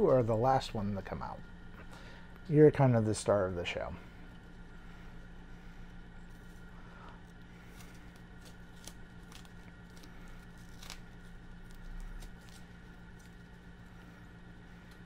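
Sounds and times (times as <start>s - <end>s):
steady low hum: 0.0s - 15.0s
tape crinkling: 6.1s - 15.0s.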